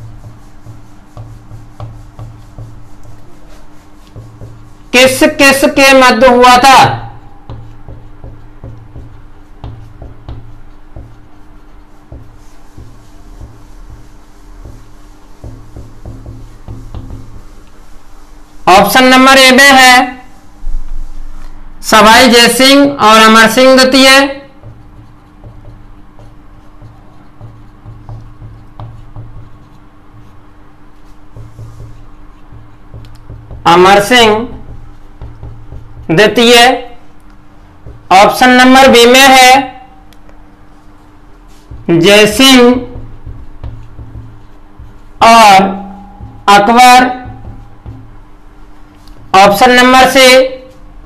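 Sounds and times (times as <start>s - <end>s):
marker pen writing on whiteboard: 0.0s - 50.8s
faint low hum: 22.9s - 49.6s.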